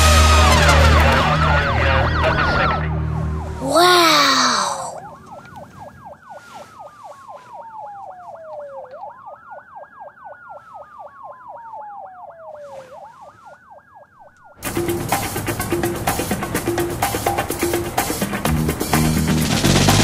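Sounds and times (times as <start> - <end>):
police siren wailing: 0.0 - 18.5
police siren yelping: 0.5 - 18.4
loud music with drum hits: 14.6 - 20.0.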